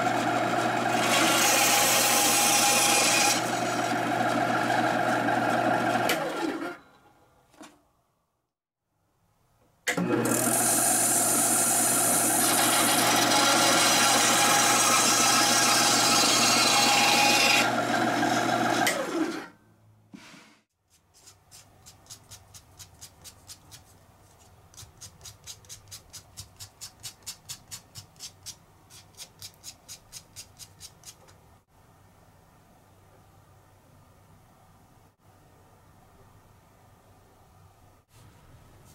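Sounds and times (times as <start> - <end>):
band saw cutting wood: 0.0 - 6.7, 10.0 - 19.5.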